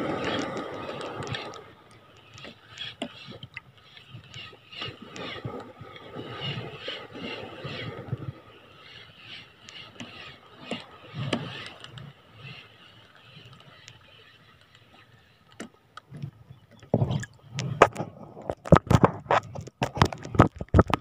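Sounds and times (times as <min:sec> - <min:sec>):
sea wash: 0:00.0 - 0:21.0
fishing reel winding: 0:00.1 - 0:15.6.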